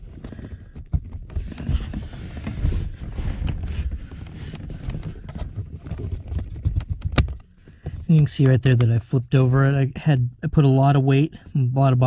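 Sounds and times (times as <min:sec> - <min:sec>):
cushion rustling and handling: 0:01.2 - 0:09.6.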